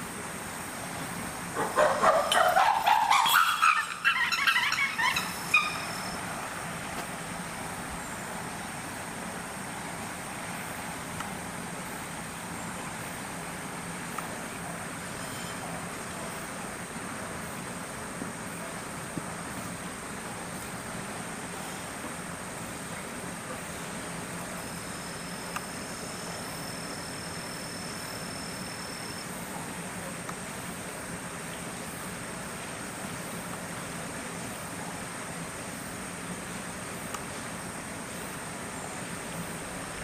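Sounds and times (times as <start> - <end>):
chimpanzee calls: 1.6 - 6.2.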